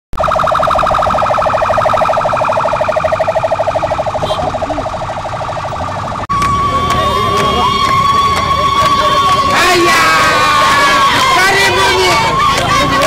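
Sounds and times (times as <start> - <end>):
siren pulsing warble: 0.1 - 6.9.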